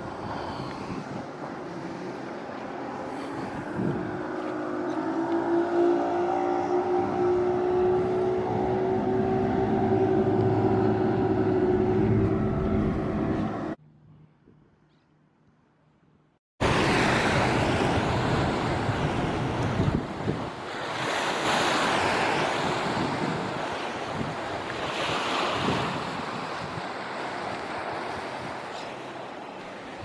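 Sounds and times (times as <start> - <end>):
engine humming: 2.2 - 13.8.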